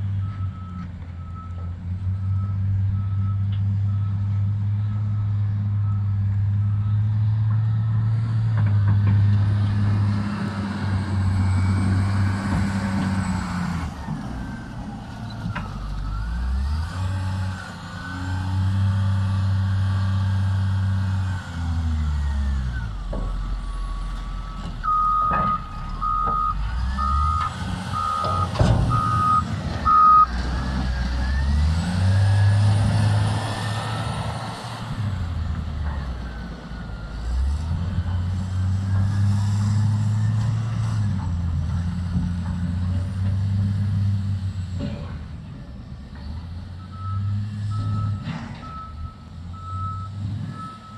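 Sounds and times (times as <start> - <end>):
diesel engine revving: 0.0 - 50.9
reversing alarm beeping: 23.4 - 30.3, 46.8 - 50.9.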